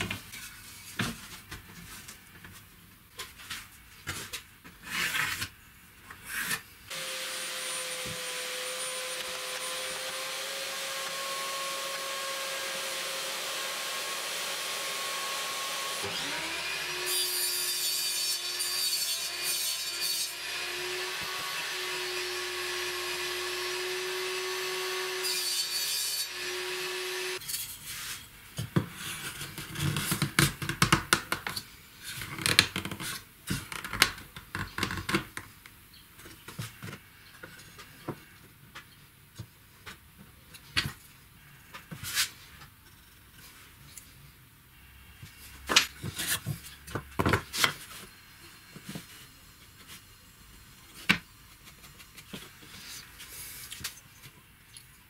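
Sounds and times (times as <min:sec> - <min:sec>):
table saw cutting: 0:06.9 - 0:27.4.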